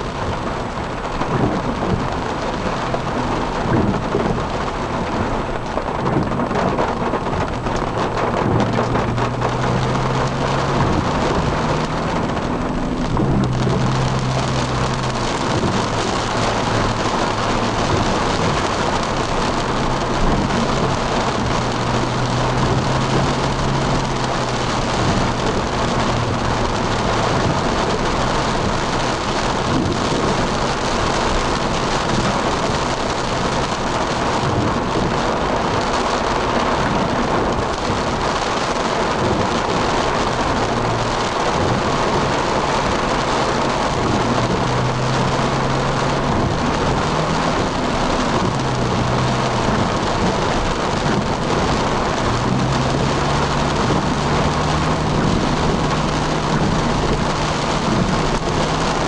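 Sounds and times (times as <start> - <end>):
heavy rain on a car: 0.0 - 59.0
low engine hum: 0.0 - 59.0
wet road noise: 0.0 - 59.0.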